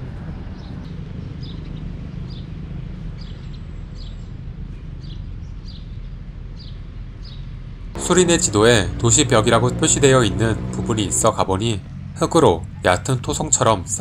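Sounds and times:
small birds chirping: 0:00.6 - 0:11.4
steady low rumble: 0:07.9 - 0:14.0.

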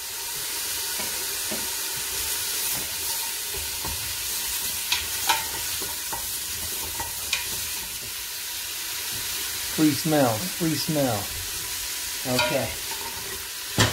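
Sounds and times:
bacon sizzling in a pot: 0:00.0 - 0:13.9
utensil scraping metal pot: 0:12.3 - 0:13.4.

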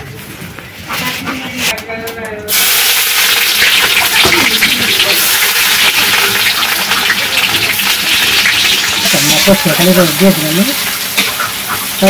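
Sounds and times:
onions sizzling in hot oil: 0:02.5 - 0:12.0.

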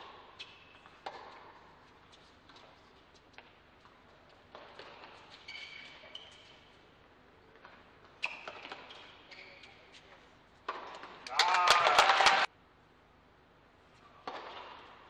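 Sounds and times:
shoes squeaking on court: 0:00.3 - 0:11.2.

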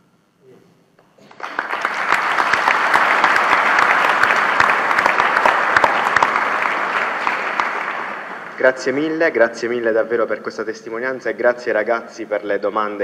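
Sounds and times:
audience applauding: 0:01.2 - 0:09.3.

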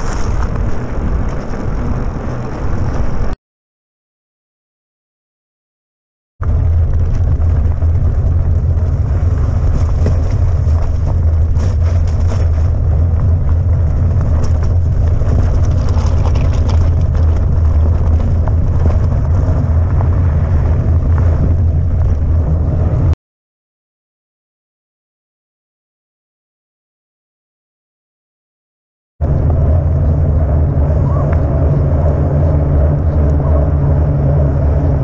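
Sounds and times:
bike rolling over gravel: 0:00.0 - 0:03.3, 0:06.4 - 0:23.1
wind buffeting microphone: 0:00.0 - 0:03.4, 0:06.4 - 0:23.2, 0:29.2 - 0:35.0
stones clicking and rattling: 0:14.3 - 0:19.1.

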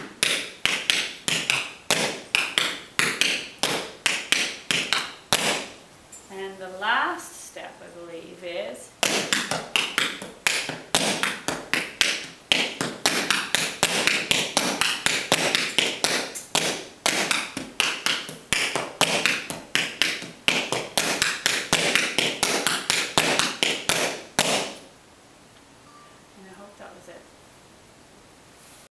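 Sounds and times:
tap shoes clicking on a hard floor: 0:00.0 - 0:05.7, 0:09.0 - 0:24.9.

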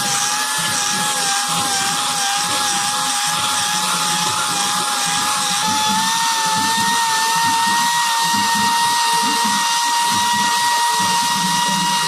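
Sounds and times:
angle grinder motor whine: 0:00.0 - 0:12.0.

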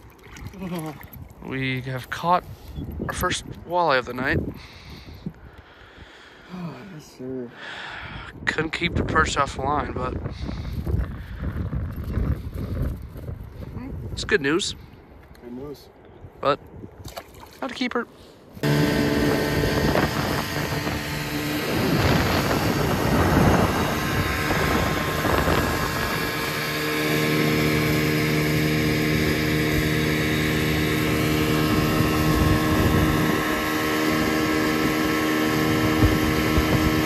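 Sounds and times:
boat motor humming: 0:00.0 - 0:01.4, 0:18.4 - 0:37.0
water noise: 0:00.0 - 0:04.7, 0:16.8 - 0:37.0
wind buffeting microphone: 0:00.0 - 0:06.2, 0:07.9 - 0:17.5, 0:18.5 - 0:37.0.

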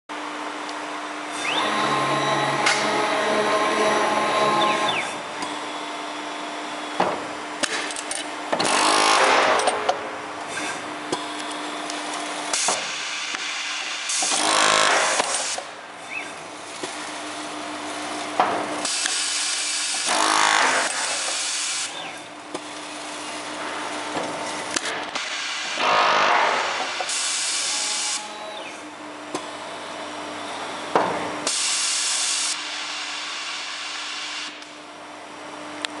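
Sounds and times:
steady machine hum: 0:00.1 - 0:07.6
machine noise surges: 0:00.9 - 0:06.9, 0:25.2 - 0:28.5.

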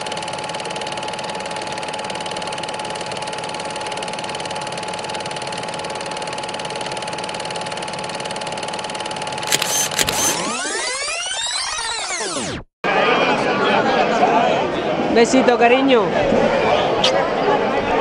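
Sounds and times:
small machine rattling steadily: 0:00.1 - 0:10.6.

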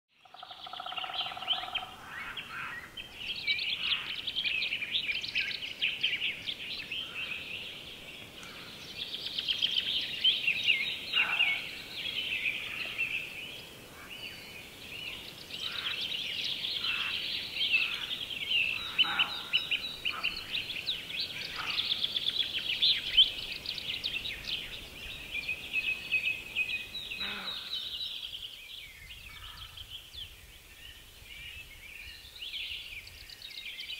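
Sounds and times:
songbirds singing: 0:00.1 - 0:33.9
low bird call: 0:25.8 - 0:28.2.

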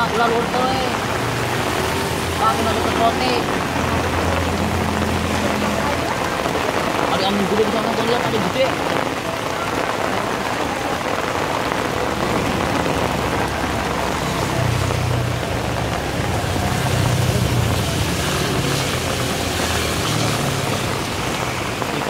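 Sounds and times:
rain hissing: 0:00.0 - 0:22.0
car engine passing: 0:11.6 - 0:22.0.

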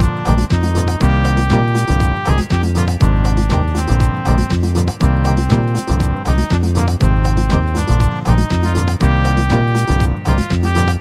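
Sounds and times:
music with heavy bass beat: 0:00.0 - 0:11.0.

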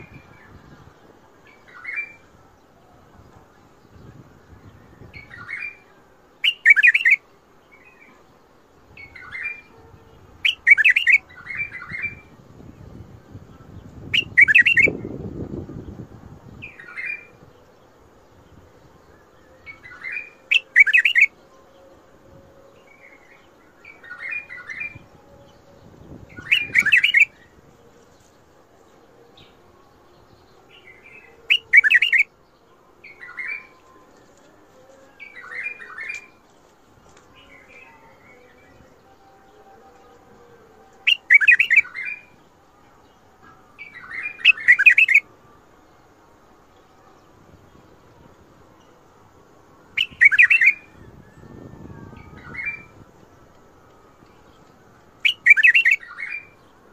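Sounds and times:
bird singing warbled phrases: 0:00.0 - 0:36.4, 0:37.0 - 0:45.3, 0:49.9 - 0:56.9.

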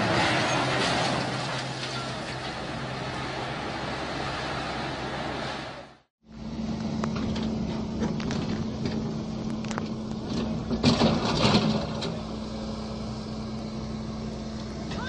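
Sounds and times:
excavator diesel engine humming: 0:00.0 - 0:15.0
knocks and clatter: 0:07.1 - 0:12.3.

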